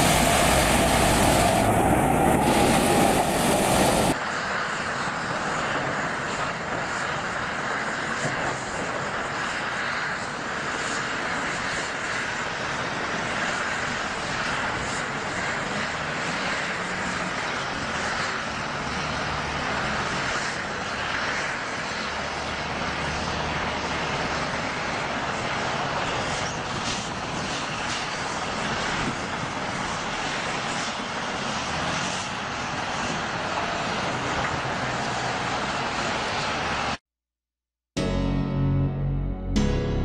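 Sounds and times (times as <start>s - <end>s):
dump truck diesel engine under load: 0.0s - 4.2s.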